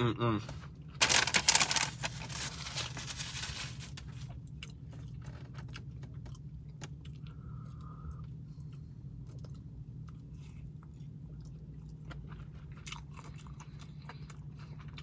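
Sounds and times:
paper wrapper crinkling: 1.0 - 4.3.

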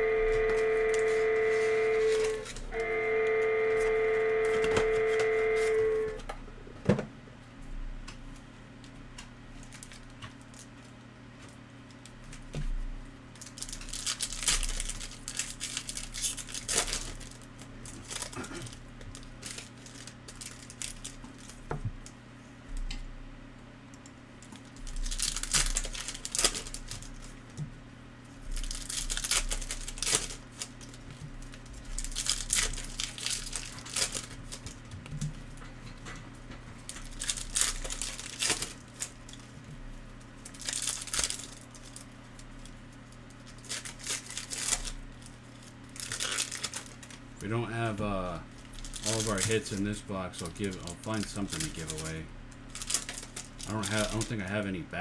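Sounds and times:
low hum: 0.0 - 6.8
card packs tearing and foil crinkling: 0.3 - 2.9, 3.7 - 6.2, 9.6 - 21.7, 24.4 - 27.5, 28.3 - 35.5, 36.8 - 54.8.

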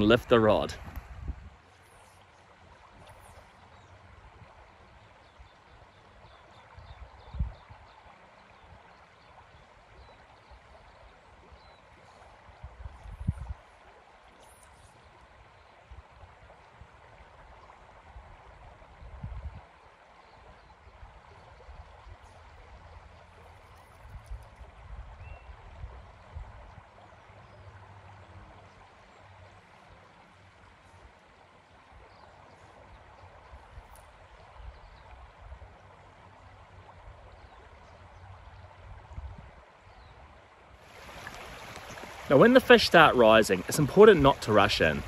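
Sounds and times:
river water flowing: 0.0 - 45.0.

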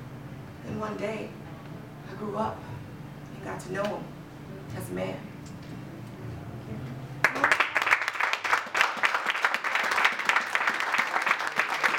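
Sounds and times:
audience applauding: 7.2 - 11.9.

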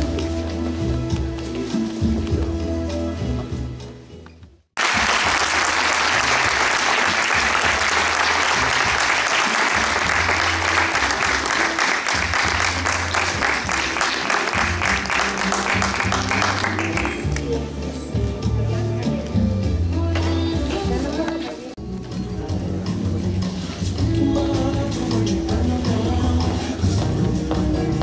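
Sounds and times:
background music: 0.0 - 28.0
audience clapping: 4.8 - 17.5.

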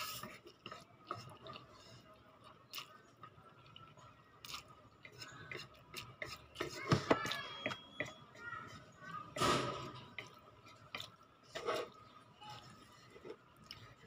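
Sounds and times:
person chewing noodles: 0.0 - 6.8, 10.0 - 14.0.

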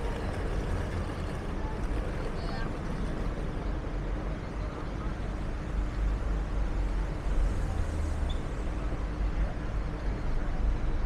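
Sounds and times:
engine rumble of passing traffic: 0.0 - 11.0.

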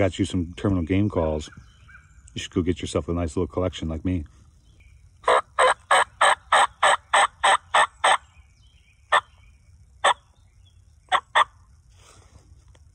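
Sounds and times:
turkey call notes: 5.2 - 8.4, 10.0 - 10.4.

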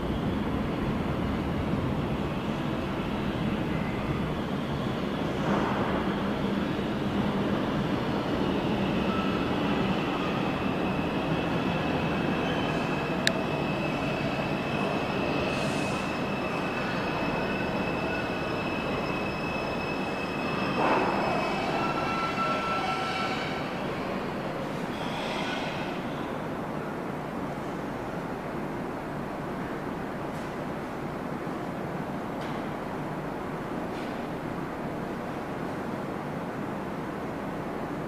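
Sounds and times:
train wheels rumbling on rail: 0.0 - 28.0
high wheel squeal: 8.9 - 23.9, 24.9 - 26.0.

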